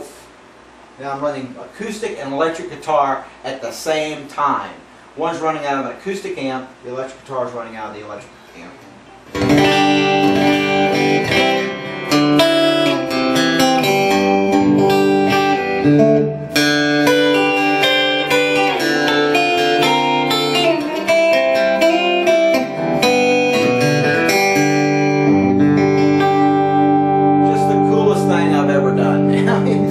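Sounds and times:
guitar strumming chords: 0:08.9 - 0:29.9.

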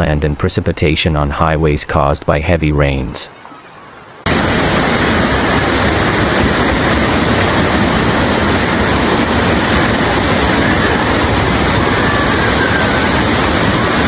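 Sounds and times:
floodwater rushing: 0:02.4 - 0:14.0.

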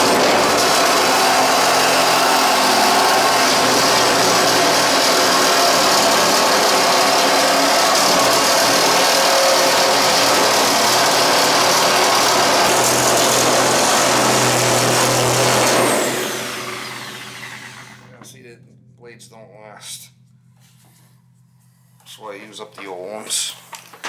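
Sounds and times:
power saw cutting steel: 0:00.0 - 0:18.4.

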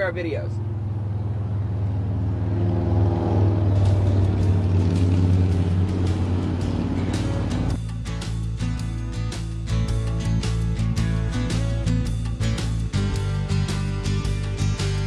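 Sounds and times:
background music: 0:03.5 - 0:15.0.

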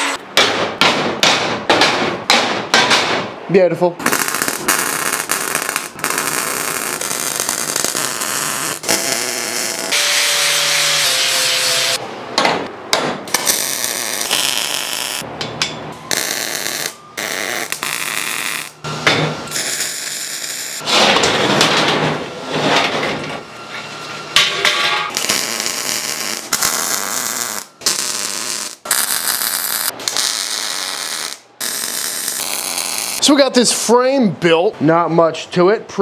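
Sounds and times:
welding arc crackling: 0:04.0 - 0:12.0, 0:13.3 - 0:15.3, 0:16.1 - 0:18.8, 0:19.5 - 0:20.8, 0:25.1 - 0:33.4.

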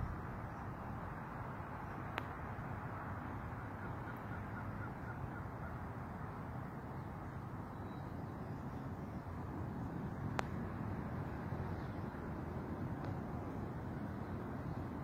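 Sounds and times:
outdoor background rush: 0:00.0 - 0:15.0
faint bird calls: 0:02.9 - 0:09.4.

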